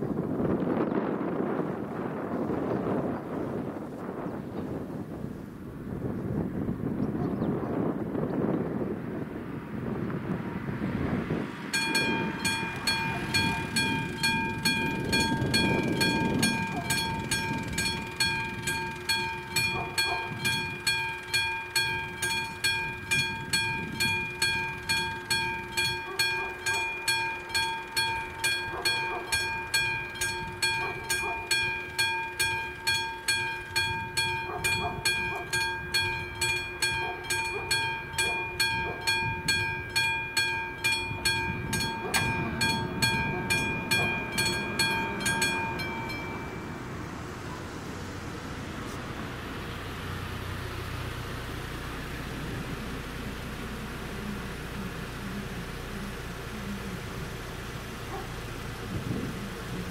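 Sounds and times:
level crossing warning bell: 11.6 - 48.7.

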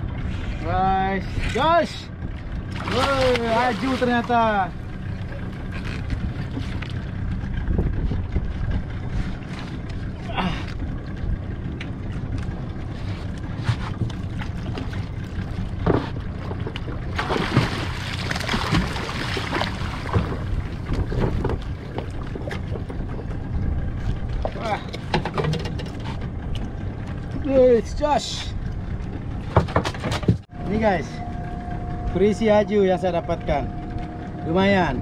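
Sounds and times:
wind and sea rumble: 0.0 - 35.0
knocks on boat: 20.0 - 23.0, 29.5 - 30.4.

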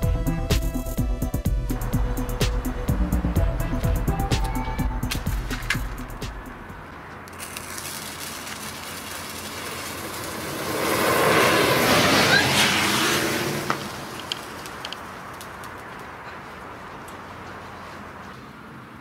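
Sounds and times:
sparklers hissing: 7.3 - 13.0.

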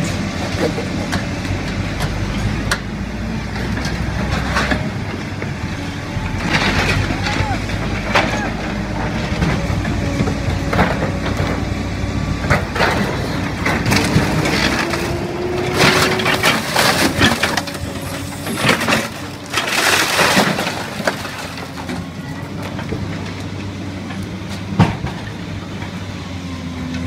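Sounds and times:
excavator engine running: 0.0 - 27.0
metal crunching and clanging: 6.3 - 11.7, 12.4 - 23.4.

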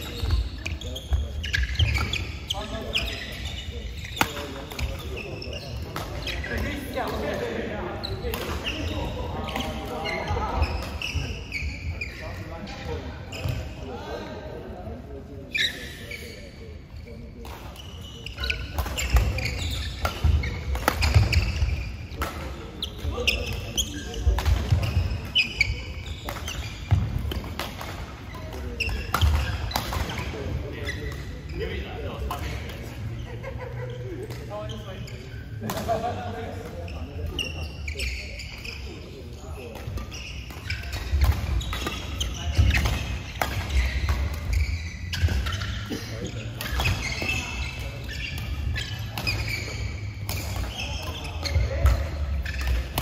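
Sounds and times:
shoes squeaking on court floor: 0.0 - 53.0
rackets hitting shuttlecock: 18.4 - 33.0, 35.5 - 37.4, 39.7 - 45.9, 46.5 - 53.0
rackets striking shuttlecocks: 39.7 - 45.7.

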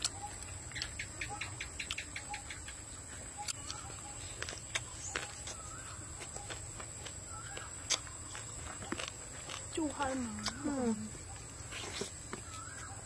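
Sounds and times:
bird chirps: 0.0 - 8.6, 10.3 - 13.0.

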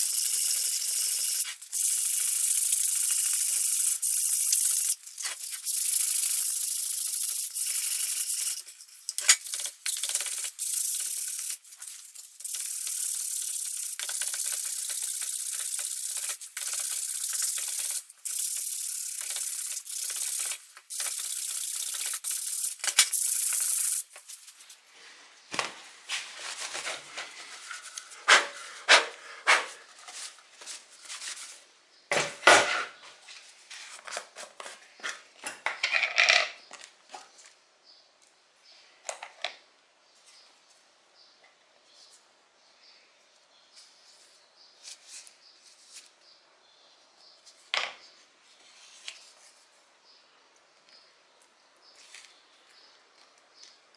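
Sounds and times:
sandpaper taps and rustles: 0.0 - 24.8.

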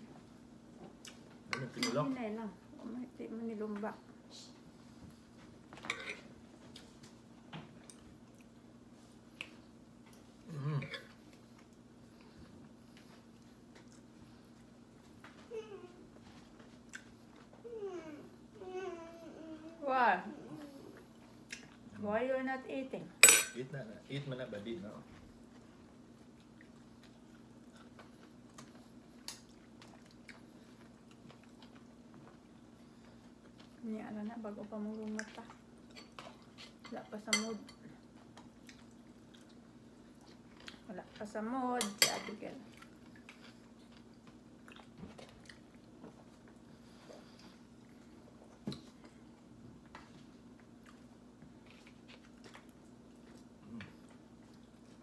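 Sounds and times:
chewing: 9.2 - 15.4, 25.4 - 33.8, 37.9 - 41.2, 42.6 - 55.0.

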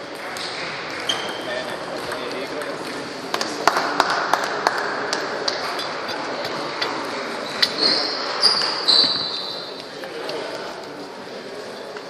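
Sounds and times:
background murmur: 0.0 - 12.0
short high squeak: 7.5 - 9.7.

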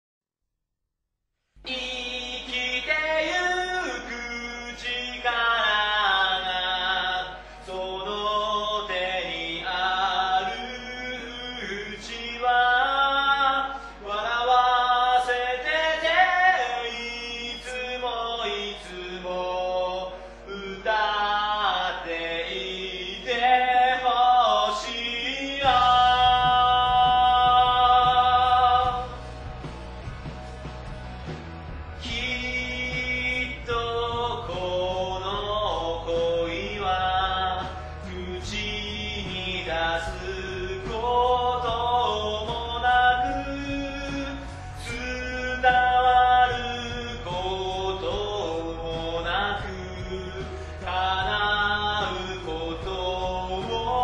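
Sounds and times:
low bass part: 25.6 - 54.0.

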